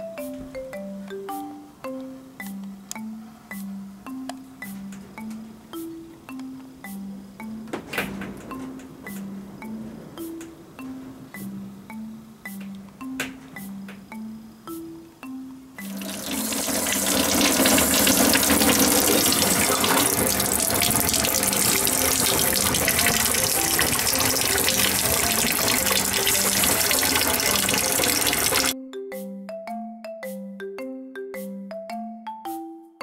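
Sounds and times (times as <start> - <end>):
mallet percussion tune: 0.0 - 33.0
running water rushing: 15.8 - 28.8.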